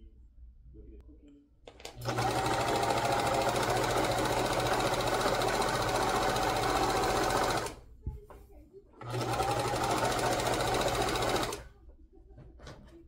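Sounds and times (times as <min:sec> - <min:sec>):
sewing machine running: 0:01.8 - 0:07.8, 0:09.0 - 0:11.7.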